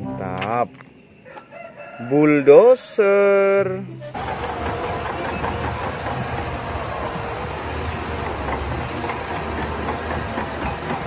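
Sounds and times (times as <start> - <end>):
bulldozer diesel engine running: 4.1 - 11.0.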